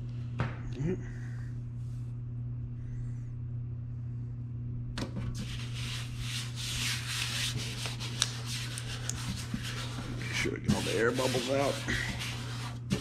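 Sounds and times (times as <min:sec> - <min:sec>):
low hum: 0:00.0 - 0:10.7
palms rubbing a label: 0:05.4 - 0:13.0.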